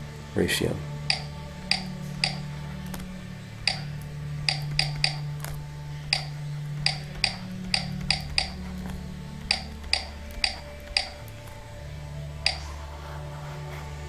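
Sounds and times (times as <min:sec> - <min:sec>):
low hum: 0:00.0 - 0:14.0
stylus clicking on tablet: 0:01.0 - 0:11.5, 0:12.4 - 0:12.8.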